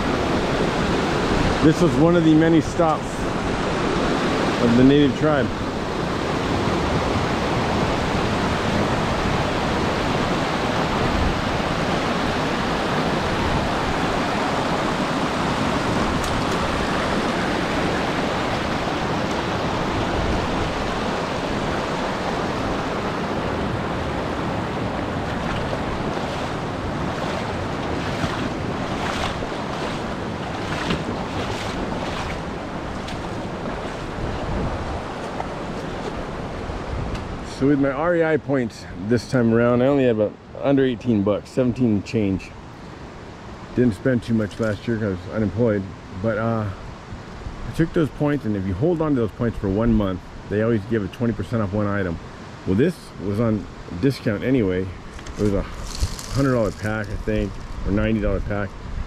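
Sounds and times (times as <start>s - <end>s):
river water flowing over rocks: 0.0s - 36.8s
wind on microphone: 0.0s - 37.5s, 54.9s - 59.0s.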